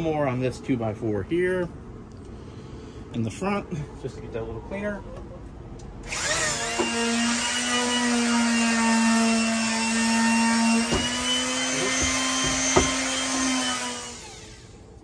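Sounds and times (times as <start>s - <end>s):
electric sander running: 6.1s - 14.8s
sharp knocks: 10.8s - 11.2s, 11.9s - 13.1s.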